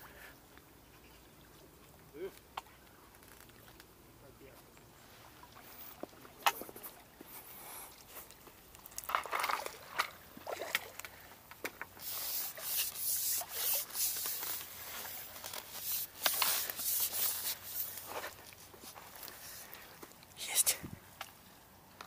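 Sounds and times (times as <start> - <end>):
landing net rustling and scraping: 11.8 - 20.0.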